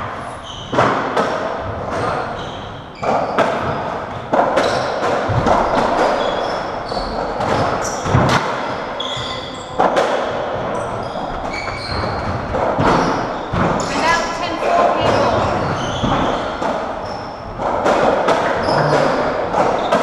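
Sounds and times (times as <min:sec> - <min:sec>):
ball hitting rackets and walls: 0:00.1 - 0:20.0
shoes squeaking on wooden floor: 0:01.8 - 0:20.0
hall noise: 0:13.5 - 0:16.9.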